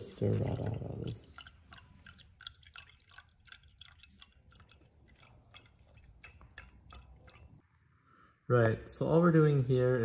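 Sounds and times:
liquid dripping into glass beaker: 0:00.0 - 0:07.7.

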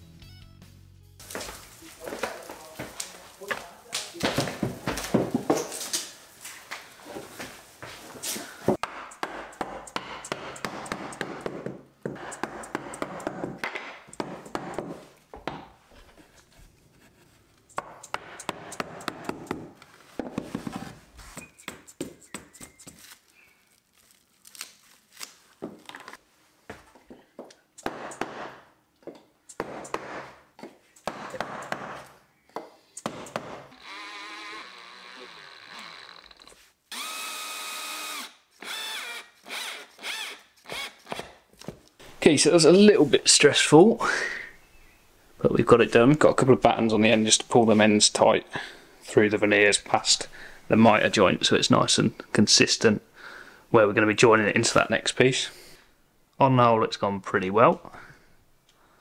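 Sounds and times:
plastic sheeting rustling: 0:01.2 - 0:04.2
rubber mallet tapping wood: 0:08.8 - 0:15.7
cordless drill running: 0:33.7 - 0:41.2.

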